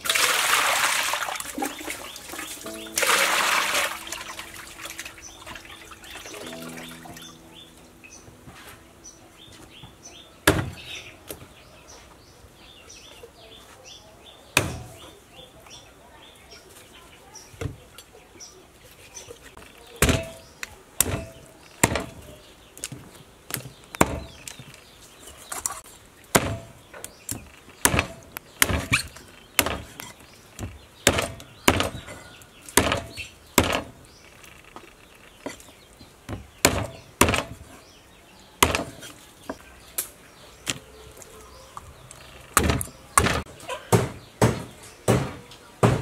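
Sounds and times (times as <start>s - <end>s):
knife chopping on wooden block: 26.4s - 26.7s, 38.6s - 39.1s.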